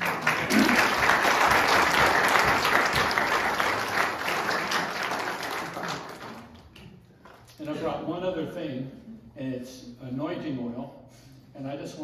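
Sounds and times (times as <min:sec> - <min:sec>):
congregation applauding: 0:00.0 - 0:06.8.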